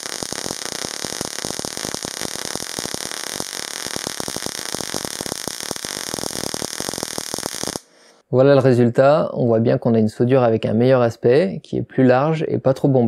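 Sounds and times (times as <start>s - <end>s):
welding arc crackling: 0.0s - 8.0s.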